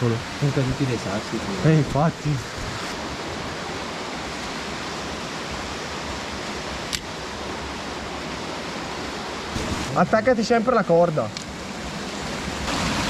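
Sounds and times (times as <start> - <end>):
waterfall splashing into pool: 8.1 - 13.0.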